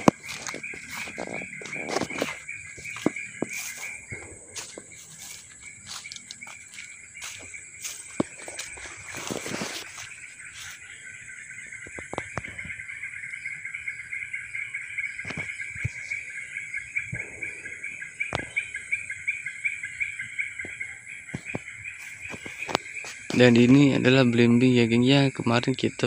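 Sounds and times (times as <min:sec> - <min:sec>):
twigs snapping: 0:00.0 - 0:07.5
footsteps in undergrowth: 0:00.0 - 0:12.8, 0:15.2 - 0:24.0
high chirping insect chorus: 0:00.0 - 0:26.0.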